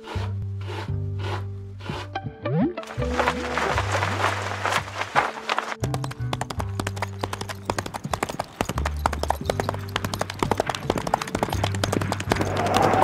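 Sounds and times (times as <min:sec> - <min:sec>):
horse hooves clip-clopping: 0:02.8 - 0:13.0.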